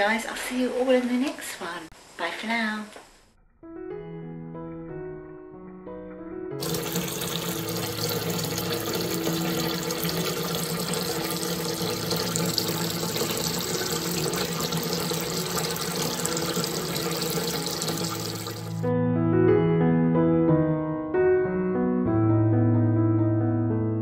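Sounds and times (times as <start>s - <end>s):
water pouring into a bathtub: 6.6s - 18.8s.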